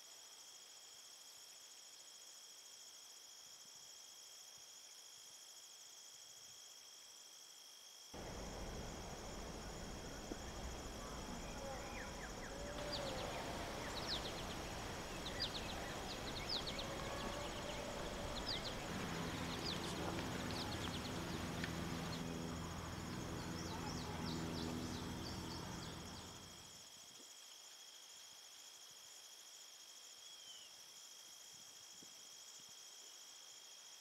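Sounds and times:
insect trill: 0:00.0 - 0:34.0
birds chirping: 0:08.2 - 0:26.5
low steady hum: 0:08.2 - 0:26.5.

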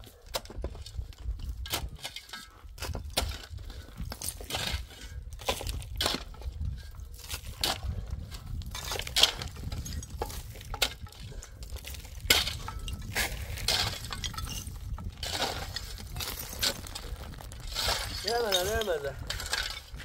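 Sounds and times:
hard objects clinking: 0:08.7 - 0:20.0.

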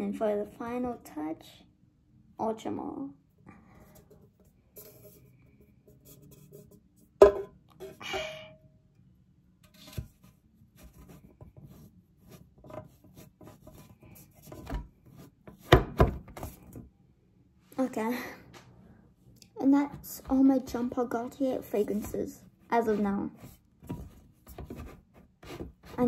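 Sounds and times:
bottles and boxes rubbing and scraping: 0:04.7 - 0:07.0, 0:20.0 - 0:26.0
sharp knocks of bottles set down: 0:07.2 - 0:07.6.

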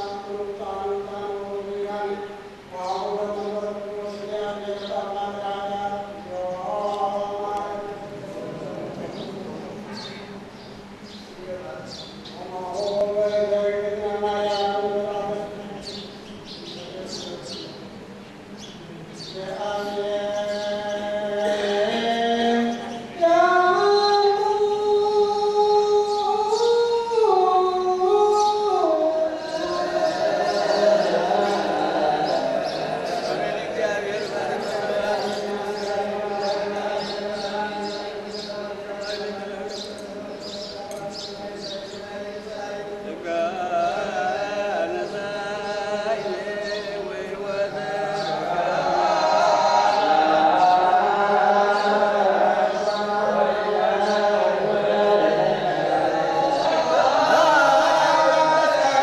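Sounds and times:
person singing slow melody: 0:18.9 - 0:59.0.

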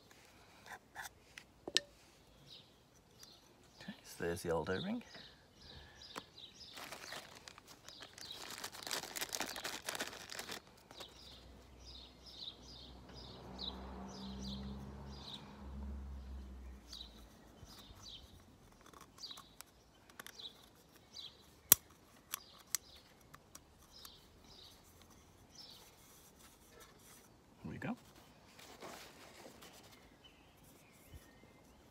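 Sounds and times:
small birds chirping: 0:00.0 - 0:31.9
plastic packet crinkling: 0:06.7 - 0:11.1
low vehicle rumble: 0:12.7 - 0:17.1
sharp plastic clicks: 0:18.8 - 0:24.2.

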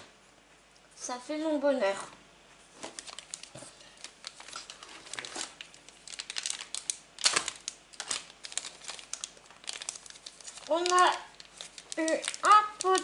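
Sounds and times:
plastic packaging crinkling: 0:02.8 - 0:13.0.

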